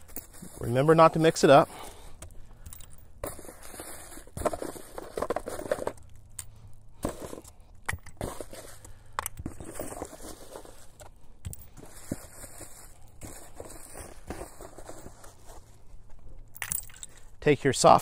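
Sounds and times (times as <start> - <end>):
cardboard box rustling and scraping: 3.2 - 6.0, 7.0 - 7.5, 8.2 - 8.9, 9.5 - 11.0, 11.8 - 15.8.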